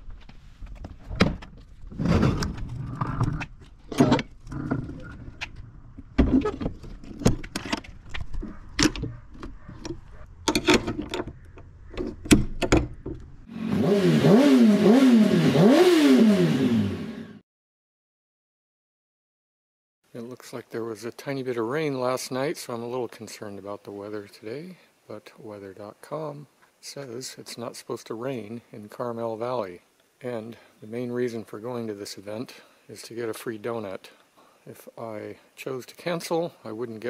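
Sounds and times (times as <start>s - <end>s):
metal clanks of trailer door and latches: 3.9s - 4.3s
engine revving: 13.5s - 17.4s.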